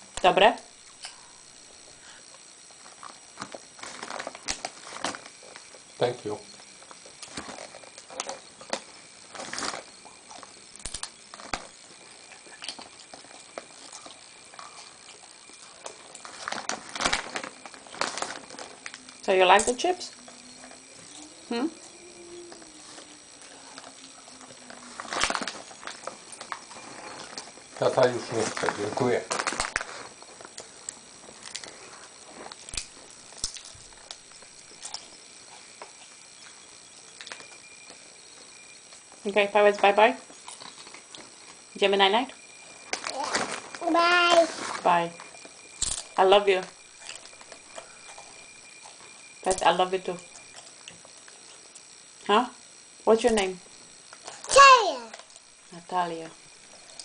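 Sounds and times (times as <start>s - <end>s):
foil chip bag crinkling: 2.8s - 21.4s, 22.0s - 36.3s, 42.4s - 49.4s
chips crunching: 22.5s - 36.2s.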